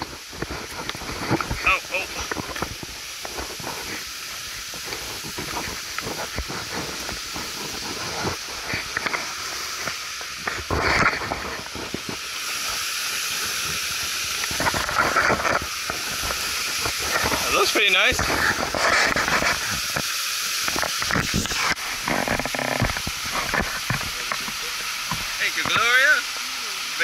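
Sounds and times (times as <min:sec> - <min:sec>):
footsteps on rocks: 0:00.0 - 0:12.2
knocks and scrapes on rocks: 0:00.0 - 0:12.8, 0:14.4 - 0:26.1
water rushing: 0:00.0 - 0:27.0.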